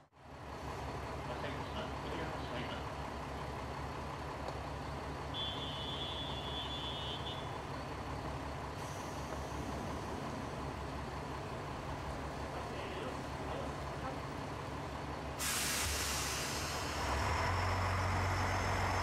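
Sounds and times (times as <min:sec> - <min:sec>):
railcar diesel engine idling: 0:00.0 - 0:19.0
air hissing: 0:15.4 - 0:17.0.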